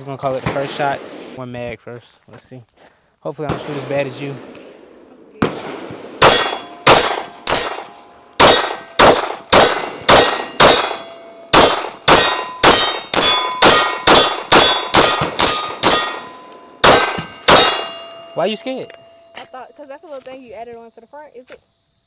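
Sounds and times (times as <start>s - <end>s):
pistol shots: 3.4s - 18.3s.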